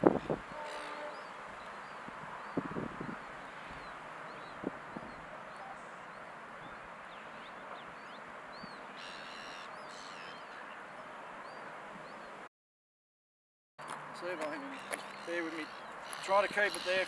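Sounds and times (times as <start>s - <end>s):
loud bird calls: 0.1s - 12.3s, 14.2s - 17.0s
small birds chirping: 13.8s - 17.0s.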